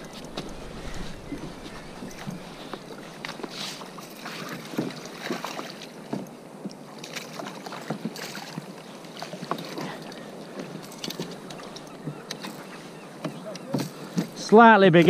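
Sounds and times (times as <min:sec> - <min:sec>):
water splashing and sloshing: 0:00.0 - 0:15.0.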